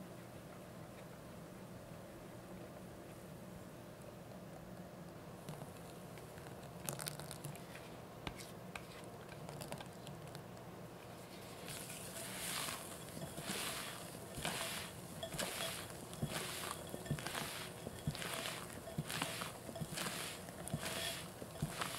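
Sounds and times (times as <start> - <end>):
soft wet swishes of batter: 11.0 - 21.9.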